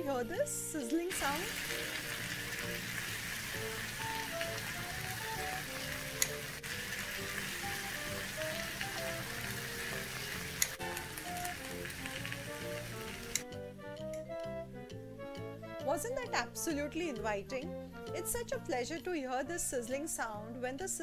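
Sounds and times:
food sizzling on hot plate: 0.0s - 13.4s.

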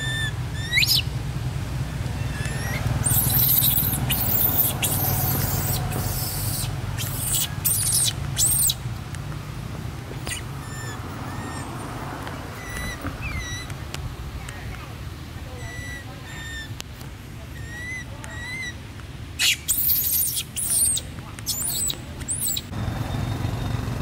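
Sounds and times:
baby monkey shrieking: 0.0s - 1.1s, 1.9s - 8.8s, 10.2s - 11.8s, 12.6s - 13.7s, 15.5s - 16.8s, 17.5s - 18.8s, 19.4s - 22.7s
short rising chirps: 2.2s - 8.8s.

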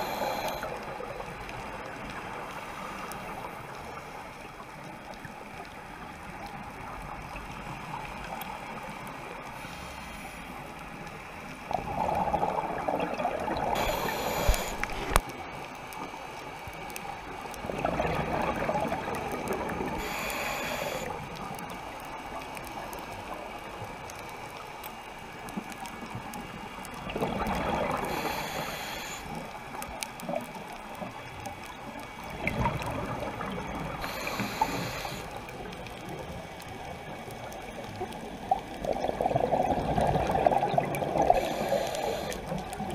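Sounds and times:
muffled underwater hiss: 0.0s - 42.9s
diver exhaling bubbles underwater: 11.7s - 15.2s, 17.6s - 20.0s, 38.8s - 41.8s.

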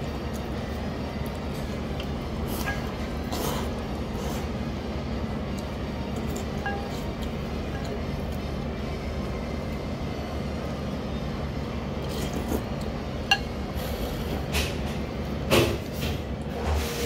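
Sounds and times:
low shop hum: 0.0s - 17.0s
spoon and chopsticks clinking on bowl: 6.4s - 8.0s, 13.3s - 13.6s.

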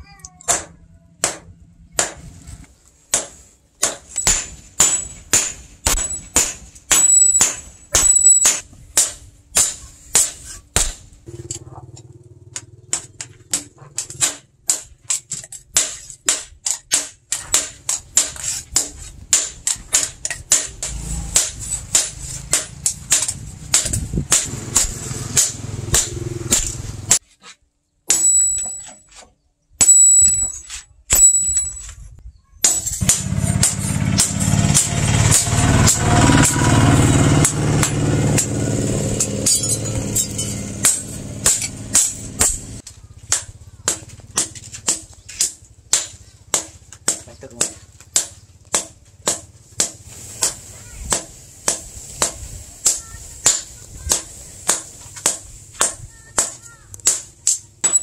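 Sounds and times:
hammer ringing on anvil: 4.2s - 8.6s.

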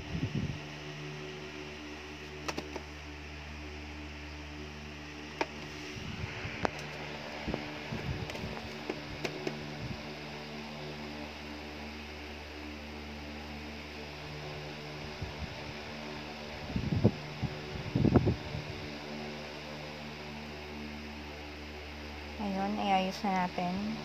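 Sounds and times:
low background hum: 0.0s - 24.0s.

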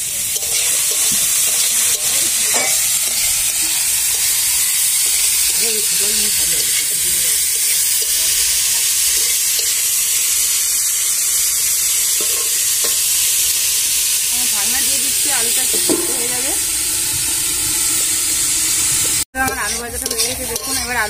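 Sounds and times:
potatoes sizzling in hot oil: 0.0s - 21.0s
spatula stirring: 0.4s - 4.2s, 19.4s - 21.0s.

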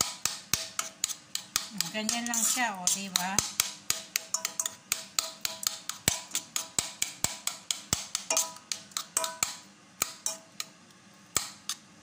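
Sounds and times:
metal spoon knocking in steel pot: 0.0s - 10.5s
pot ringing: 4.2s - 6.2s.

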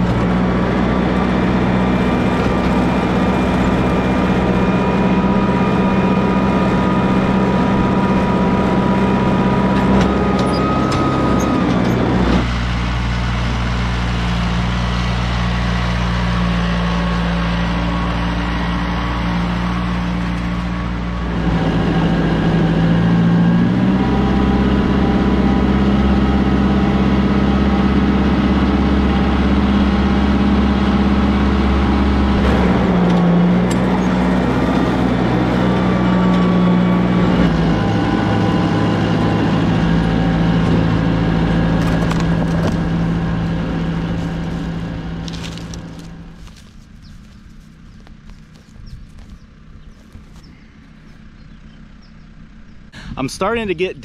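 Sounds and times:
tractor diesel engine under load: 0.0s - 54.0s
box scraper dragging through dirt: 39.2s - 50.7s.

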